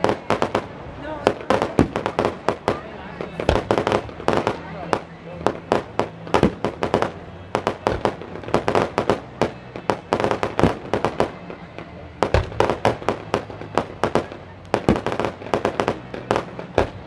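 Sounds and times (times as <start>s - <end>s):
fireworks bangs and crackles: 0.0s - 17.0s
heavy firework thump: 1.2s - 4.5s, 12.2s - 15.4s.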